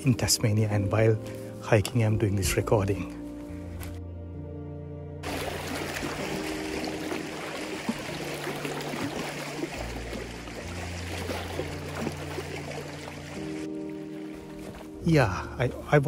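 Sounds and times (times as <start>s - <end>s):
soft background music: 0.0s - 16.0s
waves lapping against rock: 5.2s - 14.9s.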